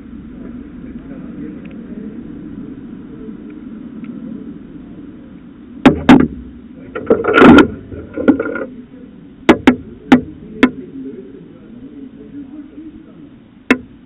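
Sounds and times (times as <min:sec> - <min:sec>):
low background hum: 0:00.0 - 0:14.0
rustling scrape: 0:06.8 - 0:08.7
sharp knocks and taps: 0:09.5 - 0:10.8, 0:13.7 - 0:14.0.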